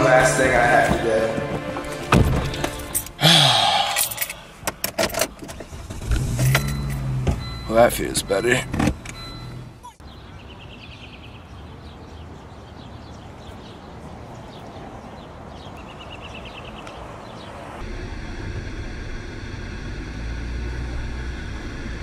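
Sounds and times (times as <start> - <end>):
motor vehicle rumble: 0.0 - 9.8, 16.6 - 22.0
outdoor background noise: 0.0 - 22.0.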